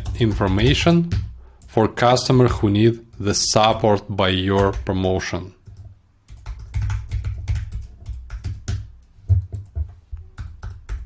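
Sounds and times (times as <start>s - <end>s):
typing on computer keyboard: 0.0s - 1.8s, 4.6s - 5.0s, 5.6s - 11.0s.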